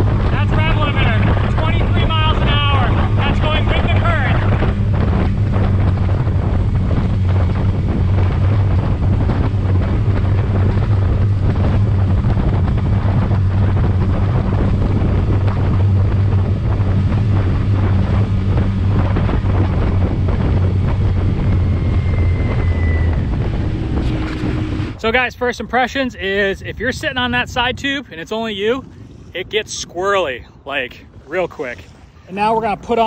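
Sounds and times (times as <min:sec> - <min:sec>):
water rushing past hull: 0:00.0 - 0:25.8
outboard motor at full throttle: 0:00.0 - 0:33.0
wind buffeting microphone: 0:00.0 - 0:33.0.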